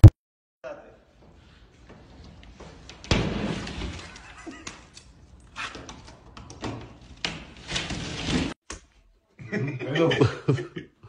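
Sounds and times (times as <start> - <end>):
plasterboard crumbling and scraping: 5.6 - 8.6.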